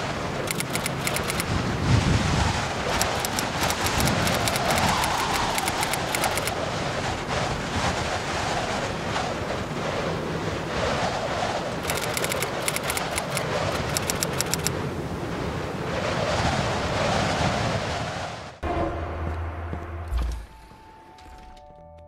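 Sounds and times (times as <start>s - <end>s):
steady rushing noise: 0.0s - 18.6s
rapid high-pitched crackle: 2.9s - 6.7s, 11.8s - 14.7s.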